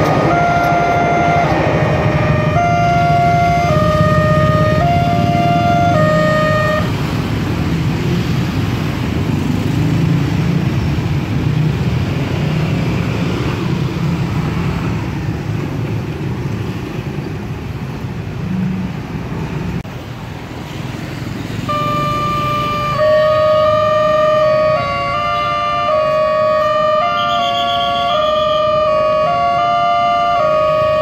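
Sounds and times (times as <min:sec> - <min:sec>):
level crossing alarm tones: 0:00.0 - 0:07.1, 0:21.6 - 0:31.0
motorcycles and cars pulling away: 0:00.0 - 0:31.0.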